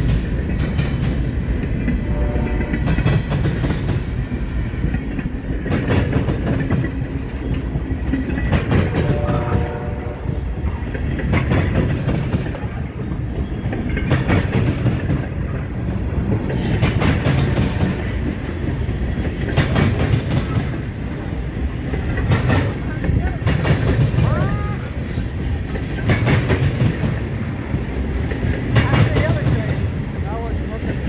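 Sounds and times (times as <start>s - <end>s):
freight train rumbling past: 0.0s - 31.0s
train wheels clacking over rail joints: 0.0s - 31.0s.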